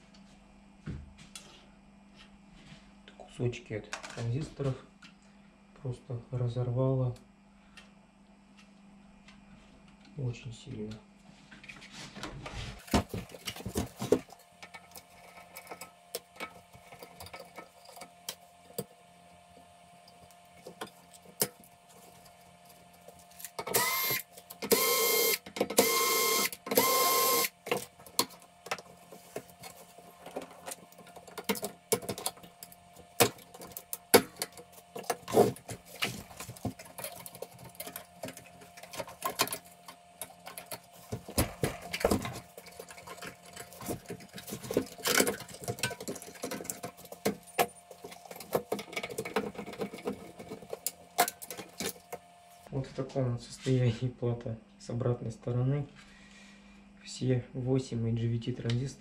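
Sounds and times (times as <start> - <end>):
clicks and knocks of parts handled: 20.2 - 52.3
power screwdriver whining: 23.6 - 27.6.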